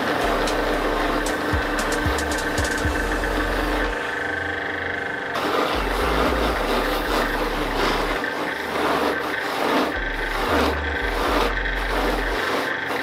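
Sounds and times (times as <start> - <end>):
bat rubbing on cloth wheel: 0.0 - 13.0
bench polishing mop motor: 0.0 - 13.0.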